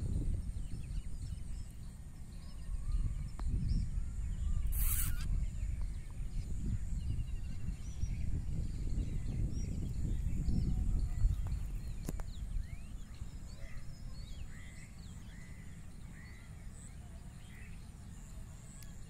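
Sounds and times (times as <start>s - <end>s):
bird chirps and trills: 0.0s - 19.0s
wind rumble on microphone: 0.0s - 19.0s
loud hiss: 4.7s - 5.3s.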